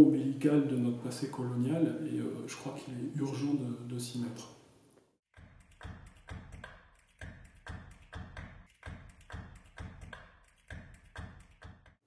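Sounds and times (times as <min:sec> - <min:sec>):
rhythmic percussive tapping: 0:05.4 - 0:12.0.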